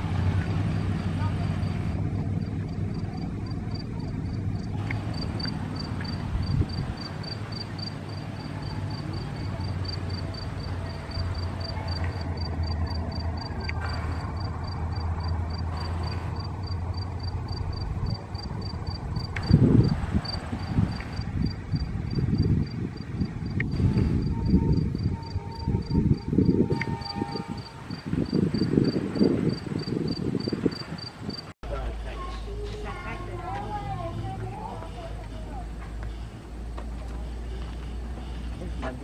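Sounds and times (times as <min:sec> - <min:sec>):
continuous low rumble: 0:00.0 - 0:39.0
insect chirping: 0:00.4 - 0:31.5.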